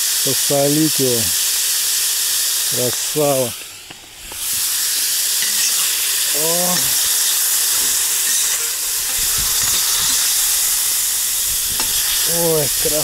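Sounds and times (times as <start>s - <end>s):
meat sizzling in hot oil: 0.0s - 13.0s
metal spoon scraping pot: 5.4s - 10.8s.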